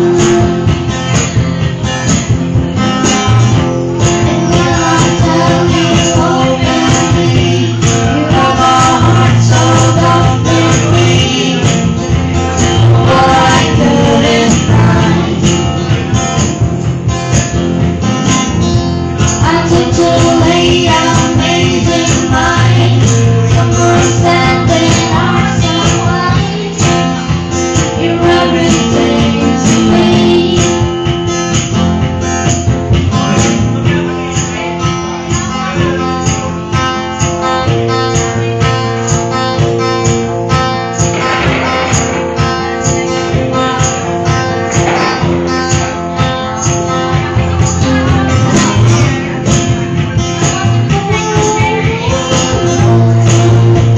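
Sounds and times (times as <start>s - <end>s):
acoustic guitar strumming: 0.0s - 53.9s
person singing: 4.0s - 16.4s, 19.3s - 31.1s, 41.0s - 53.9s
steady beat: 40.7s - 52.0s.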